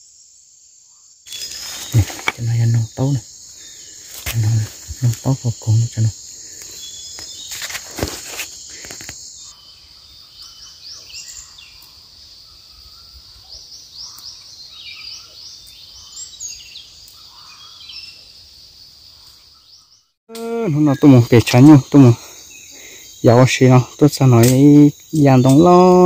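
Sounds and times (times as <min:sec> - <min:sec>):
high insect trill: 0:00.0 - 0:26.0
bird chirps: 0:00.9 - 0:07.8, 0:08.6 - 0:18.3.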